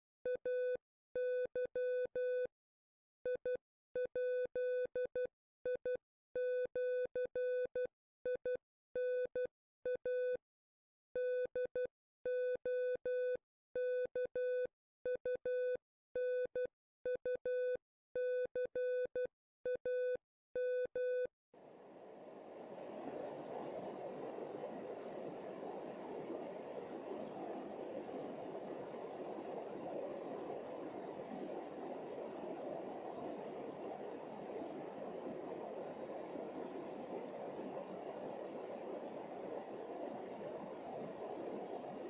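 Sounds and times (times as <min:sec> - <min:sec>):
rushing noise: 0:21.6 - 0:42.0.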